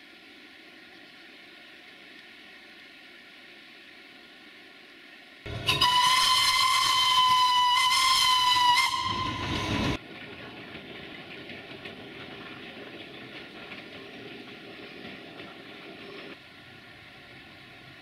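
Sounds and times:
steam locomotive whistle: 5.5 - 10.0.

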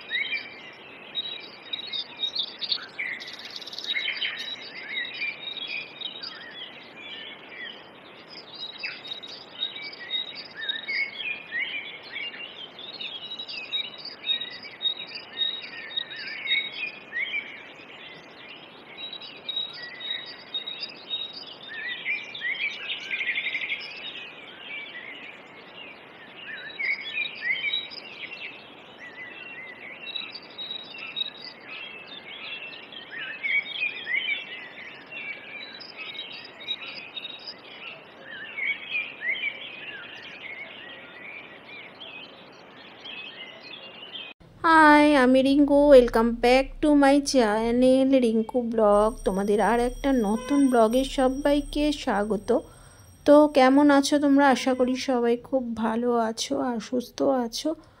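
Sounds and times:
faint outdoor hiss: 0.0 - 58.0
birds chirping and singing: 0.1 - 40.6, 41.5 - 57.6
high pulsed note: 44.6 - 55.0.

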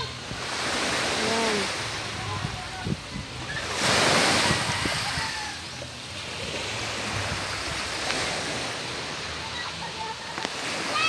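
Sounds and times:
waves washing up pebble beach: 0.0 - 2.1.

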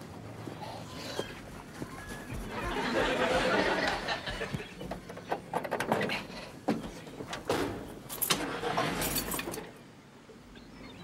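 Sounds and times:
noise: 0.0 - 11.0.

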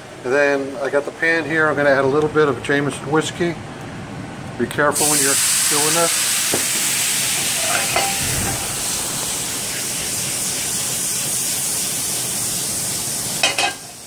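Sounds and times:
liquid sizzling in hot skillet: 5.0 - 14.0.

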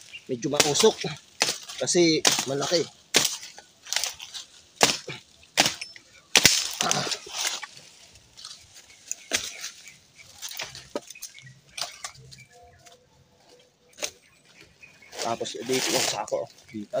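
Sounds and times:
wood cracking: 0.0 - 17.0
machete chopping wood: 0.5 - 4.2, 4.8 - 7.6, 9.2 - 9.7.

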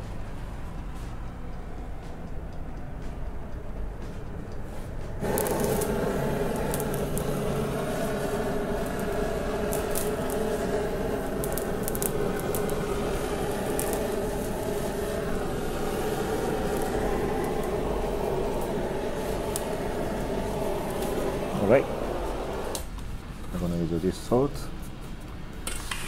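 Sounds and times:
crackles of browning food: 5.2 - 23.0
blowtorch flame running: 5.2 - 24.1.

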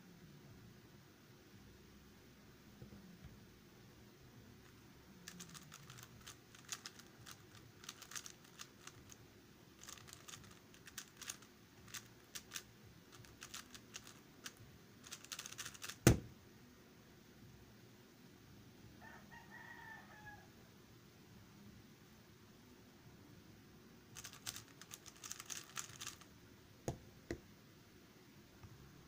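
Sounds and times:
plastic puzzle cube clicking: 5.3 - 9.2, 9.8 - 16.2, 24.2 - 26.2
loud knock: 16.0 - 16.3.

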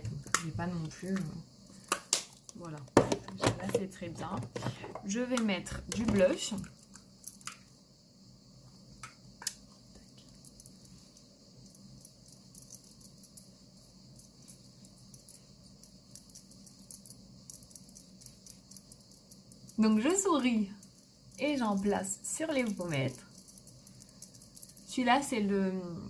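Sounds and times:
steady high hiss: 3.8 - 26.0.

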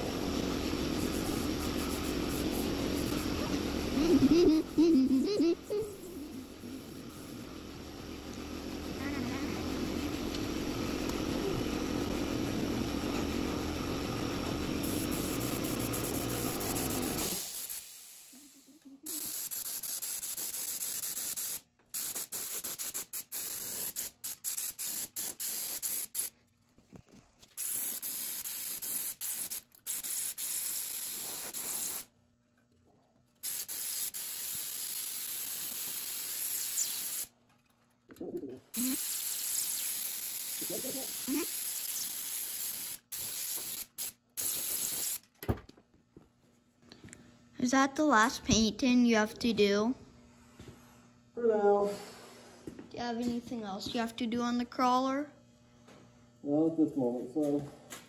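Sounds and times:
paint spray gun hissing: 0.0 - 8.4, 9.0 - 26.3, 27.5 - 32.1, 33.4 - 37.3, 38.7 - 45.2
low running noise: 0.0 - 17.2.

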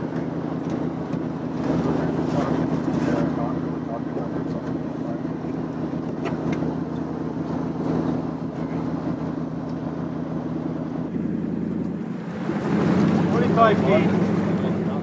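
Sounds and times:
boat engine humming: 0.0 - 15.0.

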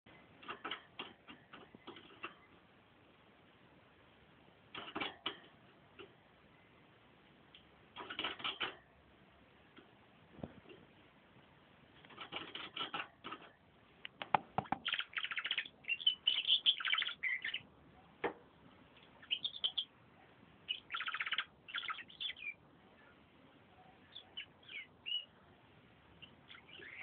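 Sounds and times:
canary singing trills: 14.6 - 17.7, 19.1 - 20.0, 20.6 - 22.7, 23.8 - 25.4, 26.1 - 27.0.

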